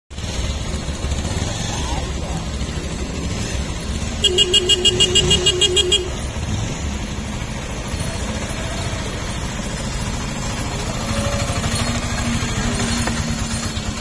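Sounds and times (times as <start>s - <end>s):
engine rumble: 0.1s - 14.0s
vehicle horn warbling beeps: 4.1s - 6.3s.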